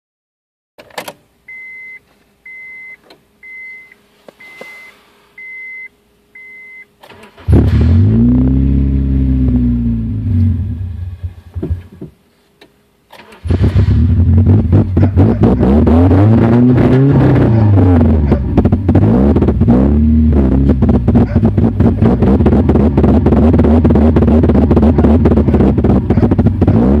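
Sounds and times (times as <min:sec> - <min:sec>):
warning chime beeping: 0:01.5 - 0:06.9
car engine starting and stalling: 0:07.0 - 0:12.1, 0:13.1 - 0:27.0.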